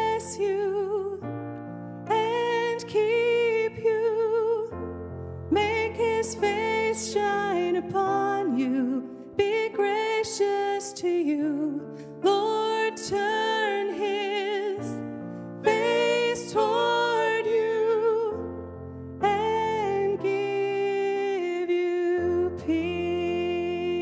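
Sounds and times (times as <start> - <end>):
keyboard: 0.0 - 24.0
person singing with vibrato: 15.6 - 18.5.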